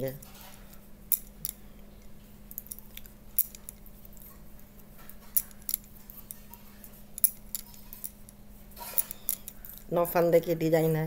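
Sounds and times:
faint steady hum: 0.0s - 11.0s
knitting needles clicking: 1.1s - 4.4s, 5.1s - 10.2s.

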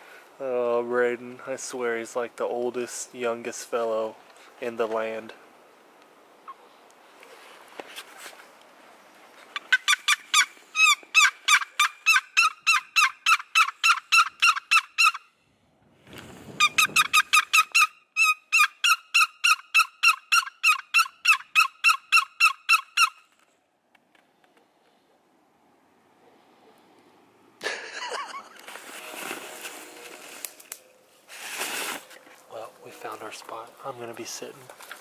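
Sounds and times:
rustle: 0.0s - 14.6s, 15.4s - 17.8s, 23.0s - 35.0s
turkey call yelps: 9.6s - 15.3s, 16.6s - 23.2s.

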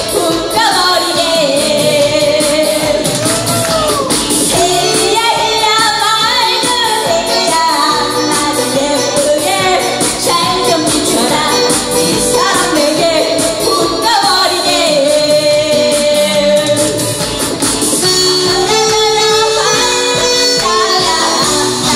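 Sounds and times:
karaoke backing music: 0.0s - 21.9s
woman singing into a microphone: 0.0s - 21.9s
hand-clapping to the beat: 2.0s - 4.5s, 6.6s - 7.6s.

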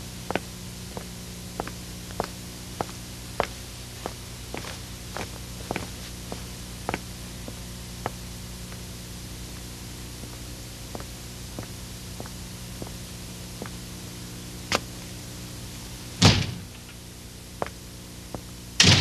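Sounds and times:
steady hiss and hum: 0.0s - 19.0s
footsteps on paved path: 0.3s - 8.8s, 9.4s - 13.8s, 17.6s - 18.6s.

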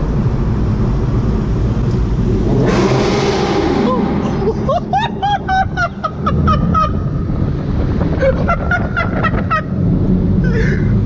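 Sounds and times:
low engine rumble: 0.0s - 11.0s.

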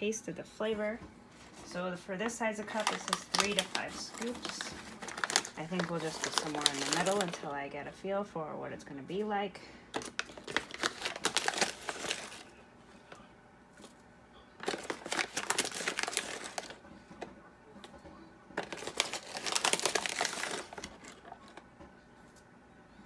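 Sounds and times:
foil bag crinkling: 2.4s - 7.6s, 9.9s - 12.5s, 14.6s - 16.8s, 18.6s - 21.6s.

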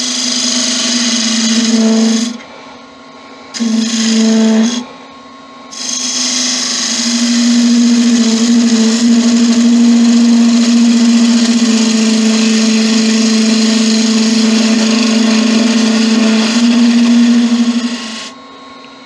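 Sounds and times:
turning tool cutting wood: 0.0s - 2.4s, 3.6s - 4.9s, 5.7s - 18.4s
wood lathe motor hum: 0.0s - 2.5s, 3.6s - 5.0s, 5.7s - 18.4s.

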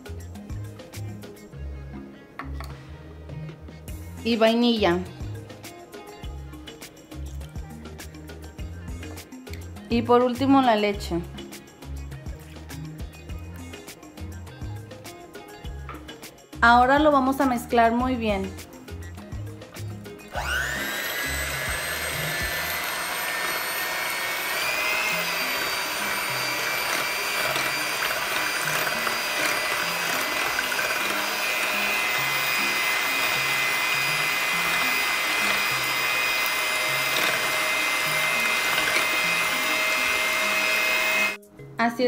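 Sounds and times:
electric hand mixer whining: 20.3s - 41.4s.

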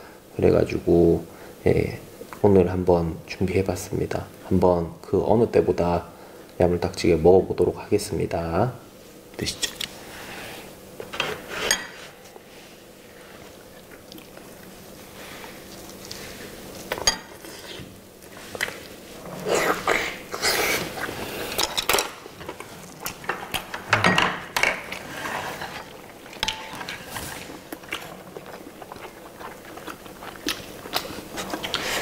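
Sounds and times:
biting and chewing: 13.5s - 23.8s, 24.8s - 32.0s.

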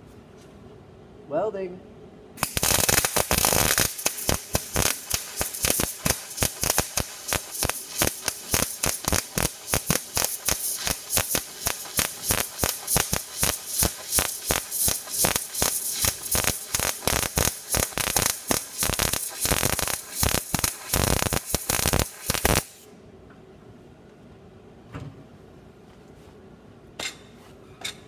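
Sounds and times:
welder arc crackling: 2.4s - 22.9s.

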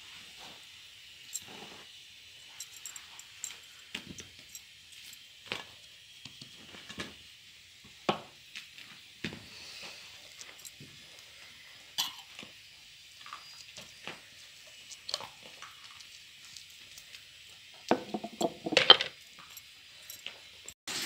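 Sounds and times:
rolling pin knocking on board: 17.9s - 18.9s.

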